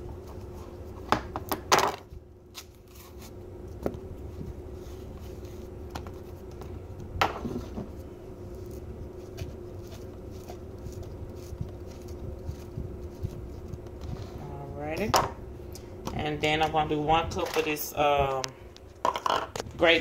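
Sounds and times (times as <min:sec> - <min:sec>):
steady hum: 0:00.0 - 0:20.0.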